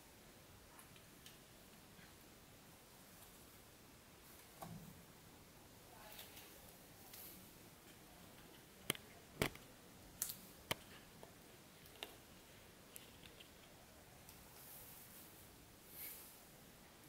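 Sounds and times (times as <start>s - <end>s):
sharp clicks and taps: 8.8s - 9.6s.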